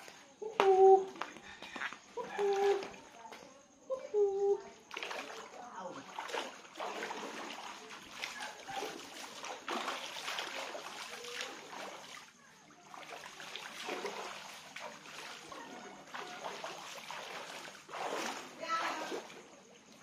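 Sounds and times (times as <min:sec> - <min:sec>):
seawater splashing: 0:04.9 - 0:20.0.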